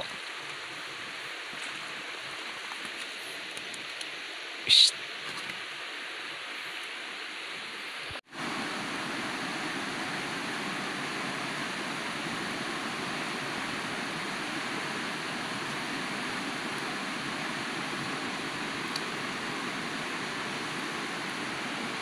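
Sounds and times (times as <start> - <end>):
river water rushing: 8.3 - 22.0.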